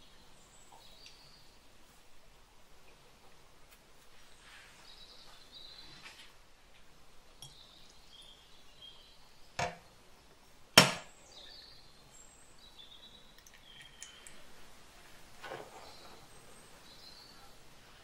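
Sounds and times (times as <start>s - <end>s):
faint bird chirps: 0.0s - 1.7s, 4.2s - 6.3s, 7.3s - 10.0s, 11.2s - 14.5s, 15.6s - 17.6s
sharp knocks: 10.8s - 11.1s.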